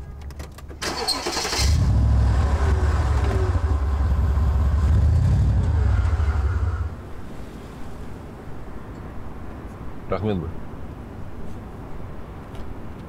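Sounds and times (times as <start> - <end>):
car engine rumbling: 0.0 - 8.2
car engine cranking: 0.2 - 7.0.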